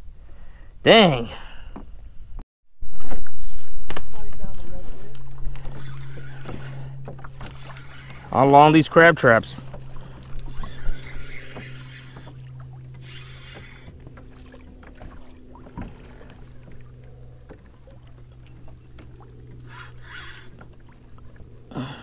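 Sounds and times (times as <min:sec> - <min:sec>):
low hum: 0:02.0 - 0:22.0
spinning reel cranking: 0:05.5 - 0:08.4, 0:10.3 - 0:12.4, 0:13.0 - 0:13.9, 0:19.6 - 0:20.6.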